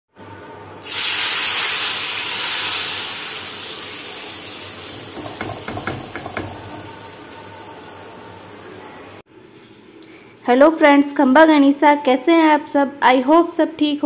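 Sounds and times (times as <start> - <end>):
hot oil sizzling: 0.8 - 9.2.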